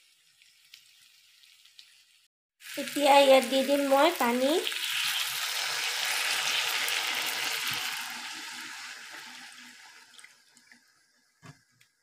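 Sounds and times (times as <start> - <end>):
water sizzling in hot wok: 0.0 - 11.7.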